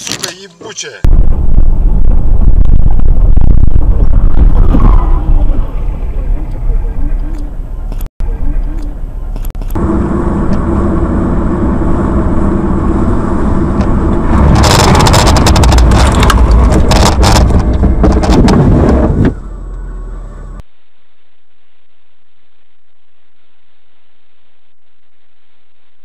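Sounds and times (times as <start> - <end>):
car engine and road noise: 0.0 - 20.8.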